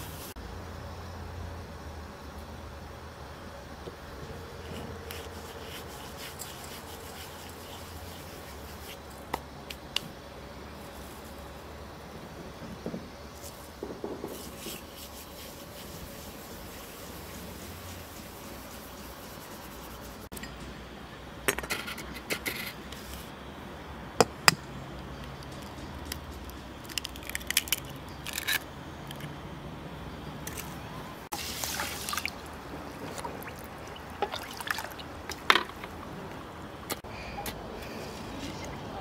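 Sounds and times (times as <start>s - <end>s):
hands working in soaking grain: 4.6s - 10.0s, 13.3s - 20.3s, 31.3s - 36.0s
liquid trickling into a bowl: 33.2s - 35.2s.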